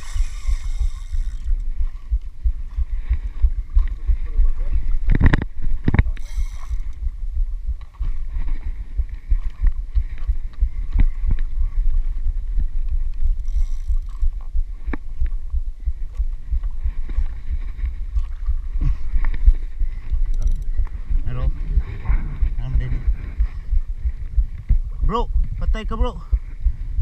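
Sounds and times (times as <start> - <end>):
fishing rod and reel knocks: 0.0 - 2.2, 20.3 - 21.0
wind and sea rumble: 0.0 - 27.0.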